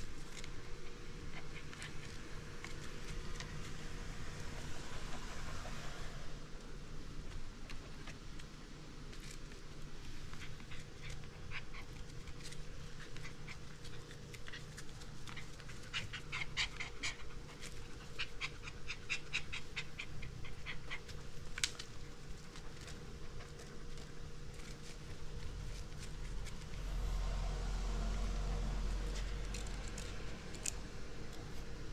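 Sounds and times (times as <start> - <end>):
puppy panting: 10.3 - 26.6.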